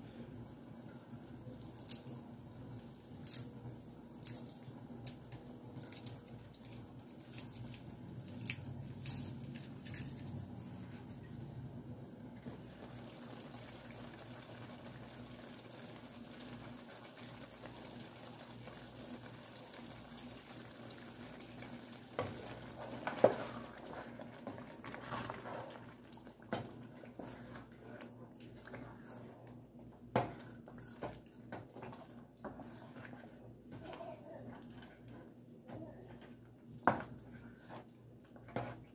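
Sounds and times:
sauce simmering in a pot: 0.0s - 5.7s, 12.1s - 38.9s
wooden spoon stirring: 12.4s - 38.9s.

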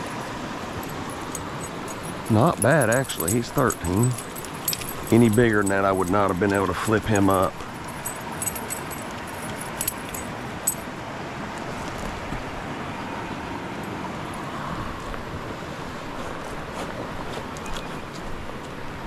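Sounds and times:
small metallic clinks: 0.0s - 10.9s
rushing outdoor noise: 0.0s - 19.0s.

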